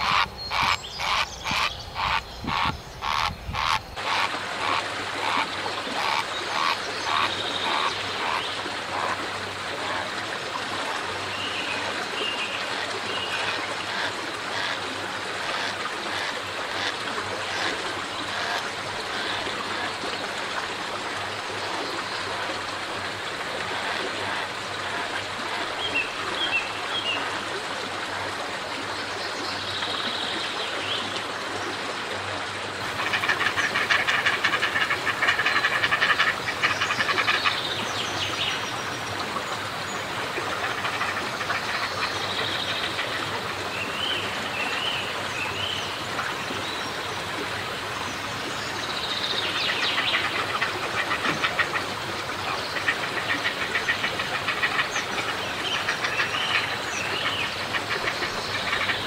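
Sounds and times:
frogs croaking: 0.0 - 20.1, 32.8 - 44.1, 48.2 - 59.0.

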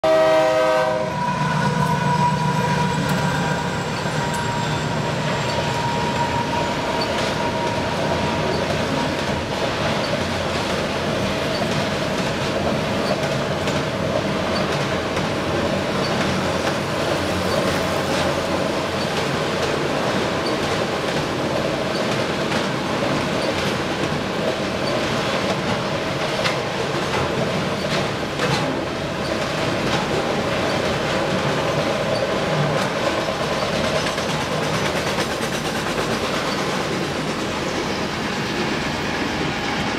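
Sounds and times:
train horn: 0.0 - 9.1
train wheels rumbling on rails: 0.0 - 39.9
high wheel squeal: 1.1 - 10.2.

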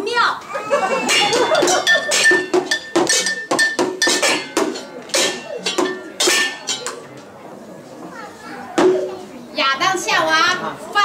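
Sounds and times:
pots and pans clanging: 1.0 - 7.2.

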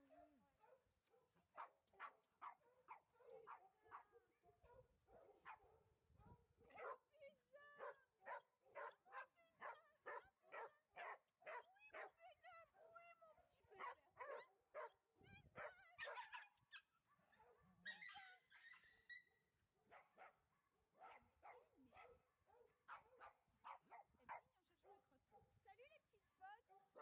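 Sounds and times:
dogs barking: 1.6 - 5.8, 6.7 - 7.0, 7.8 - 12.2, 13.8 - 15.0, 21.0 - 24.4.

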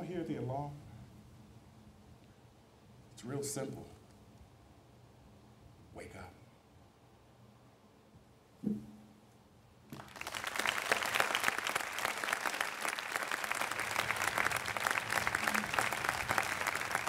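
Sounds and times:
large crowd applauding: 9.9 - 17.0.

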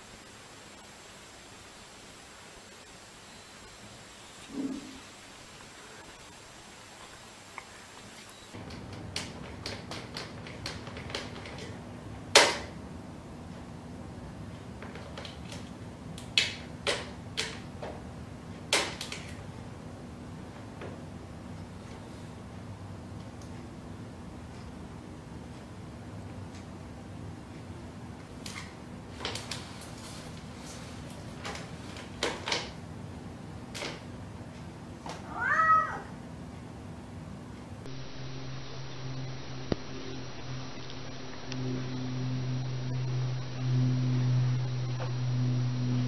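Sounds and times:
cat meowing: 35.2 - 36.2
low steady hum: 36.0 - 46.0.

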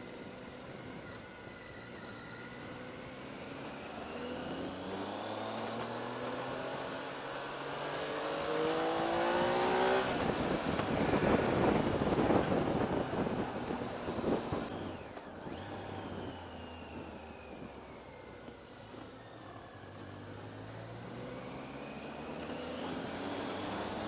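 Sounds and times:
motorcycle engine accelerating: 0.0 - 24.0
wind noise on microphone: 9.8 - 18.0.

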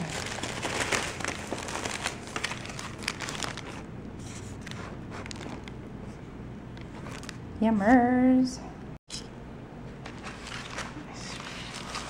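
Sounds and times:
paper wrapper crinkling: 0.0 - 5.8, 7.0 - 7.4, 10.0 - 12.0.

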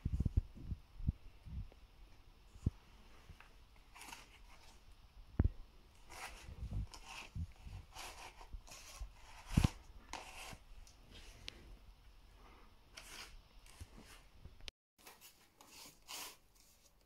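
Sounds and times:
cardboard rustling and scraping: 2.5 - 4.9, 6.0 - 11.4.

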